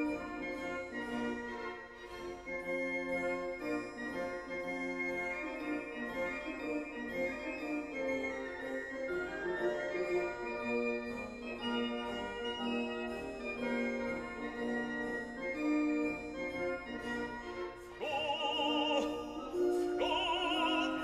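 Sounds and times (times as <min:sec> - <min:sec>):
operatic voice singing: 0:18.0 - 0:21.0
organ-like keyboard chords: 0:18.0 - 0:21.0.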